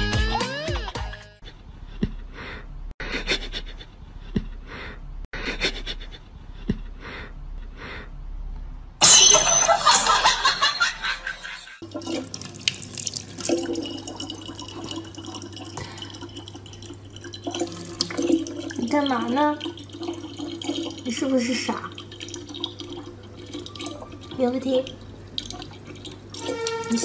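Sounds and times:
tap water running into bottle: 0:11.8 - 0:27.0.

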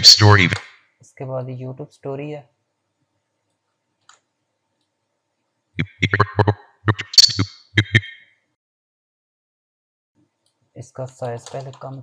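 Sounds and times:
stuttering scrubbed voice fragments: 0:00.0 - 0:00.6, 0:05.8 - 0:08.2.

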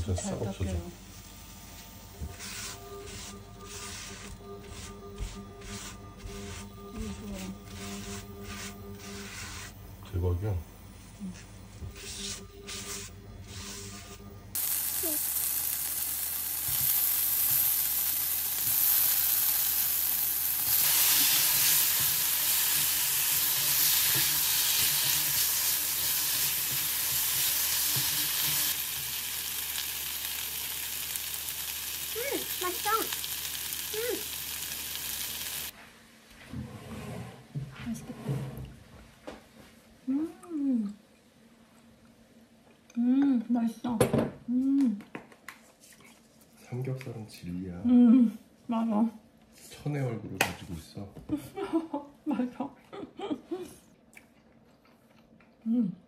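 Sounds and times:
meat sizzling in a wok: 0:14.6 - 0:35.7.

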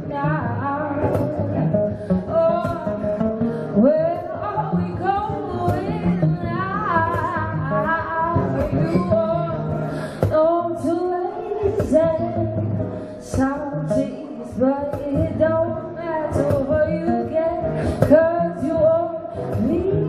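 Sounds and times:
acoustic guitars strumming: 0:00.0 - 0:20.0
woman singing: 0:00.0 - 0:20.0.

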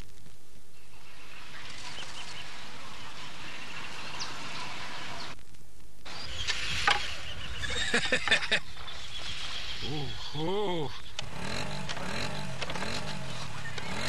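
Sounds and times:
outdoor background noise: 0:00.0 - 0:14.0
bird chirps: 0:00.7 - 0:05.4, 0:06.0 - 0:14.0.

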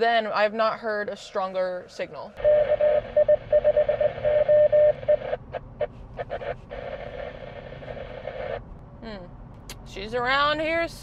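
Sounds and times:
morse code beeping tone: 0:02.4 - 0:05.3
radio static hiss: 0:04.9 - 0:08.7.

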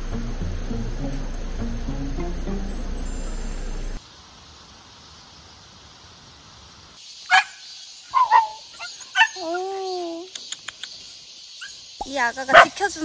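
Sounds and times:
dog barking: 0:07.3 - 0:09.5, 0:12.5 - 0:12.8
dog howling call: 0:08.1 - 0:10.0.

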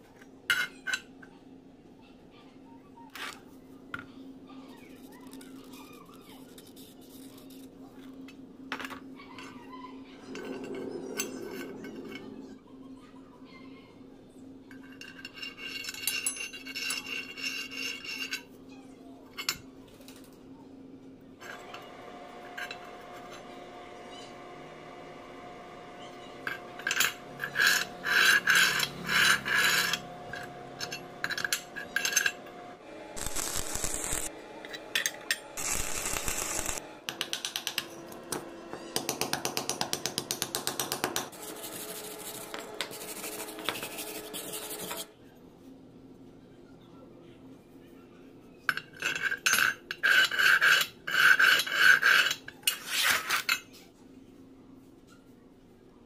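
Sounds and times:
steel parts scraping and clinking: 0:10.2 - 0:12.6, 0:14.7 - 0:18.5, 0:21.4 - 0:24.1, 0:26.0 - 0:38.4, 0:48.7 - 0:53.8
wire brush scrubbing steel: 0:21.4 - 0:36.8, 0:41.2 - 0:45.1, 0:49.9 - 0:53.4.

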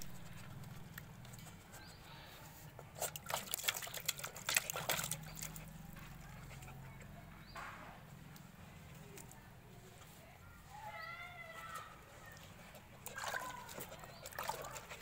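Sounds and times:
dog lapping water: 0:02.8 - 0:07.2, 0:12.3 - 0:15.0.

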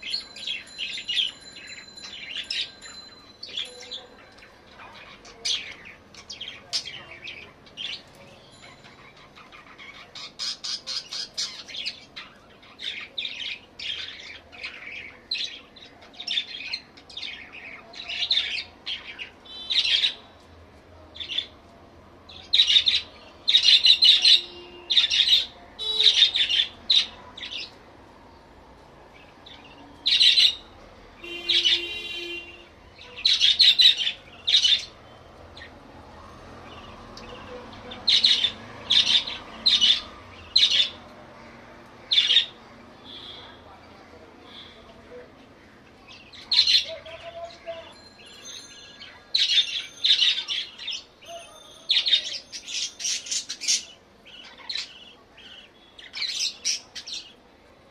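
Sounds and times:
budgerigars chirping and squawking: 0:03.4 - 0:20.2, 0:22.5 - 0:27.8, 0:31.2 - 0:32.4, 0:33.1 - 0:35.0, 0:37.2 - 0:41.0, 0:42.1 - 0:43.5.

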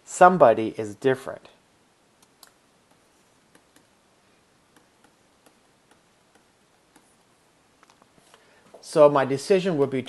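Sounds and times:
stylus tapping tablet screen: 0:02.2 - 0:04.0, 0:04.7 - 0:08.1.

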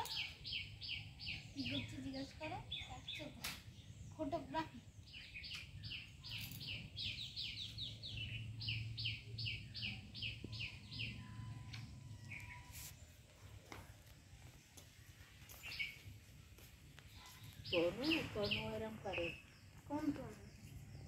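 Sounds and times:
small bird singing: 0:00.0 - 0:21.0.

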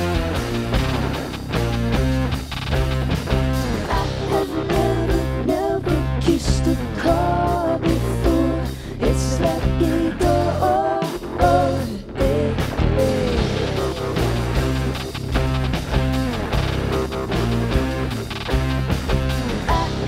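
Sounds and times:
electric guitar: 0:00.0 - 0:20.0
steady drum beat: 0:00.0 - 0:20.0
woman singing: 0:03.9 - 0:13.9, 0:19.7 - 0:20.0.

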